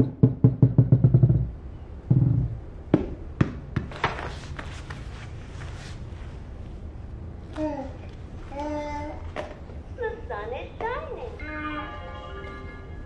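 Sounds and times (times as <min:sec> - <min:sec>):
ball bouncing on foam mat: 0:02.1 - 0:04.2.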